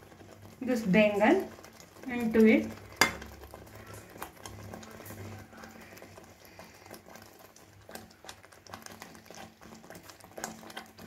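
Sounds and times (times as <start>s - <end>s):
gravy simmering and popping: 0.0s - 11.0s.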